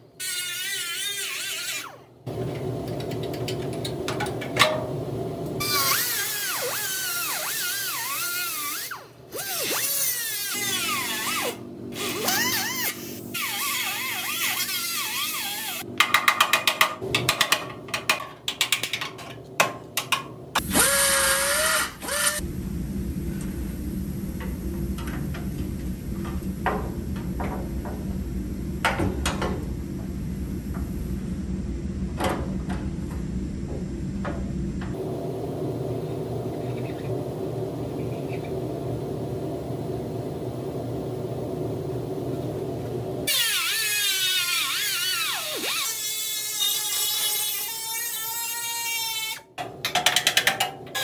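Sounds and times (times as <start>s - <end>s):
pneumatic cut-off tool grinding metal: 5.6s - 15.9s, 20.6s - 22.4s, 43.3s - 49.4s
low hum: 18.9s - 43.8s.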